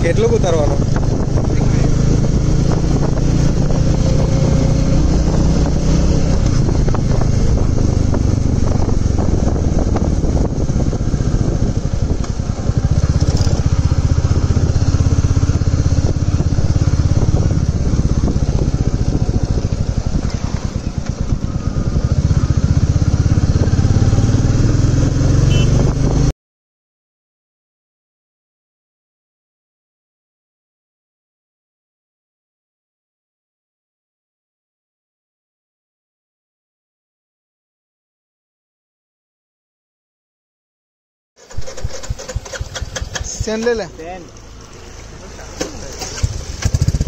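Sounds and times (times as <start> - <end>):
motorcycle engine running: 0.0 - 26.3, 41.4 - 47.0.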